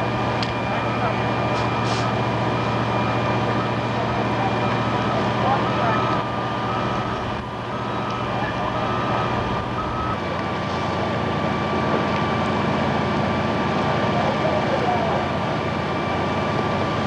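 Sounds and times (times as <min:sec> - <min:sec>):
engine running: 0:00.0 - 0:17.0
backup alarm beeping: 0:00.4 - 0:10.2.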